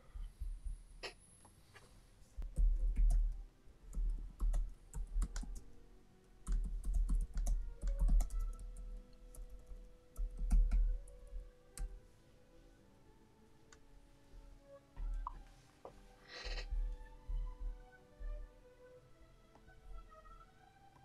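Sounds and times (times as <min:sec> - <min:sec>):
keyboard typing clicks: 0:06.5 - 0:08.8.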